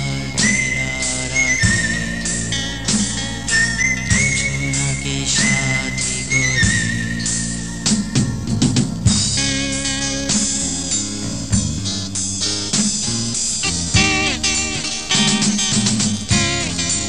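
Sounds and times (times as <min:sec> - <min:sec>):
pop-rock band music: 0:00.0 - 0:17.0
drum fill: 0:06.6 - 0:17.0.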